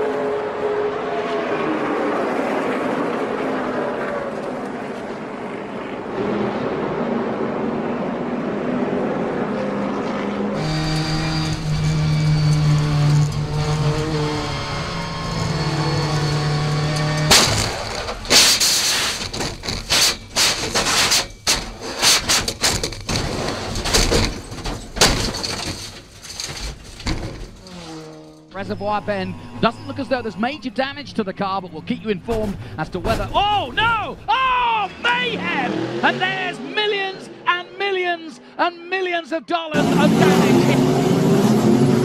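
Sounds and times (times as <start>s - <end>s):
race car engine at high revs: 0.0s - 21.8s, 35.2s - 37.5s, 39.8s - 42.0s
trucks running: 0.0s - 42.0s
car crash impacts and scraping: 17.0s - 28.2s.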